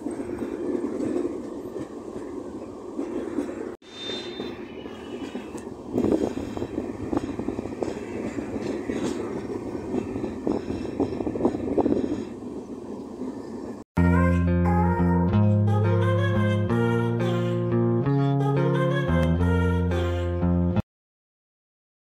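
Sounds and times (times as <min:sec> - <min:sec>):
train wheels rumbling on rails: 0:00.0 - 0:13.8
train clattering knocks: 0:04.4 - 0:12.4.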